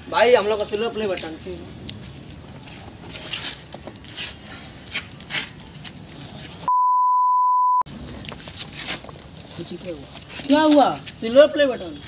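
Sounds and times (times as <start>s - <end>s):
censor bleep: 6.7s - 7.9s.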